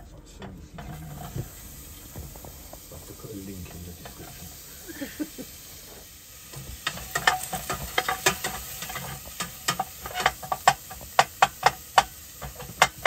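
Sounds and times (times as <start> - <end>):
onion sizzling: 0.8 - 13.0
spatula scraping a metal pot: 6.5 - 13.0.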